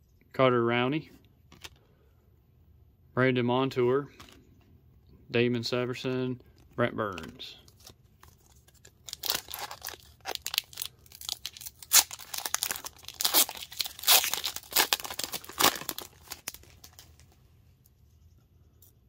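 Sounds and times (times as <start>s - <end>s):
wrapper tearing and crinkling: 7.8s - 17.3s.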